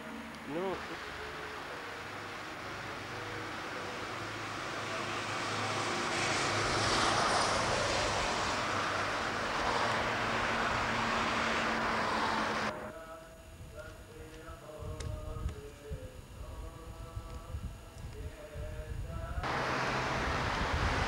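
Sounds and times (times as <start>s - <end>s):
motor vehicle passing: 3.4s - 12.9s, 19.4s - 21.0s.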